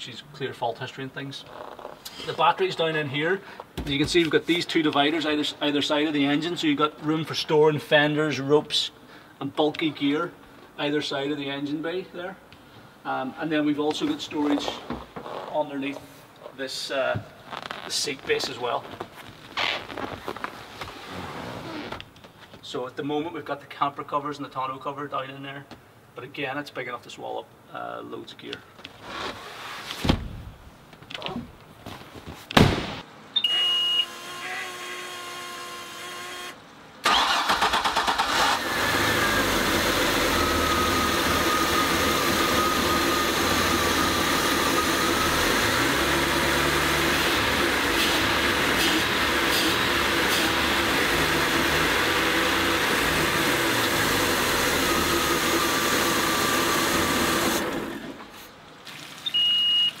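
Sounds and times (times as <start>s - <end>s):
thump: 30.0s - 30.5s, 32.6s - 33.0s
short beep: 33.4s - 34.2s, 59.2s - 60.0s.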